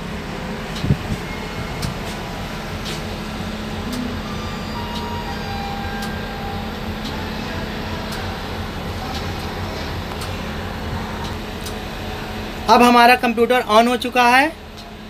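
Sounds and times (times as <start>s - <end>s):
low machinery drone: 0.0s - 15.0s.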